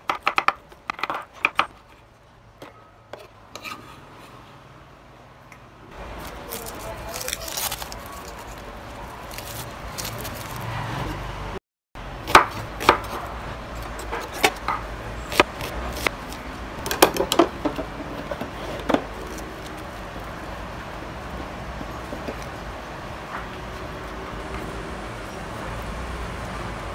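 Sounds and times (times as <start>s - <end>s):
onion skin crackling: 6.0s - 11.0s, 19.1s - 20.6s.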